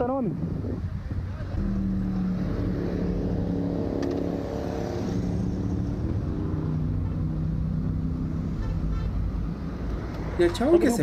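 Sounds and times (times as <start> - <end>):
car and motorcycle engines idling: 0.0 - 11.0.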